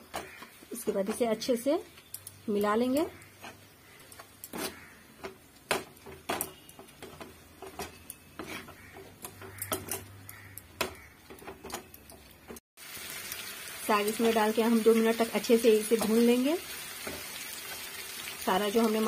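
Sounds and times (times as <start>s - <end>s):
metal spoon scraping frying pan: 2.9s - 4.9s, 6.5s - 10.6s.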